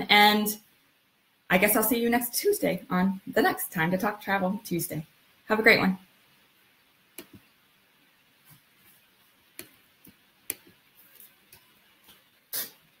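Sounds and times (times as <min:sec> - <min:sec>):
small clicks and taps: 0:07.2 - 0:07.5, 0:09.6 - 0:12.3.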